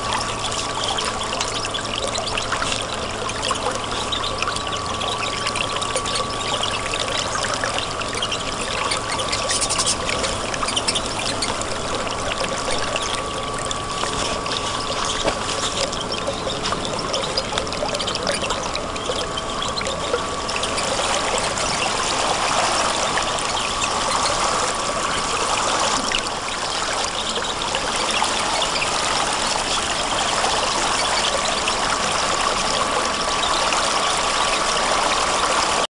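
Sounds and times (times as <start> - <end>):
stream water flowing: 0.0 - 35.8.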